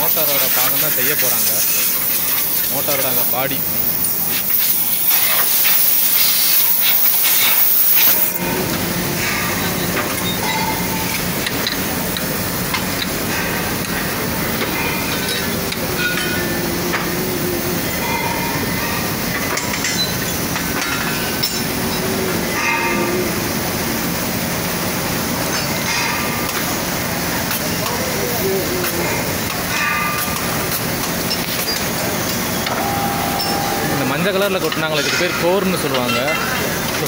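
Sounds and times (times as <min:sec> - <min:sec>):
foundry machinery noise: 0:00.0 - 0:37.0
compressed air hissing: 0:00.1 - 0:19.4.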